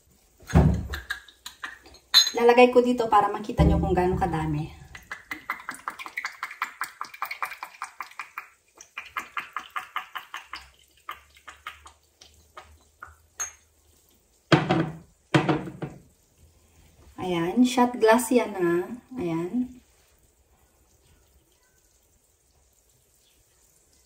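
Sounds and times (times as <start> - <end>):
liquid dripping into a glass: 4.7 - 14.3
knocks: 14.5 - 16.0.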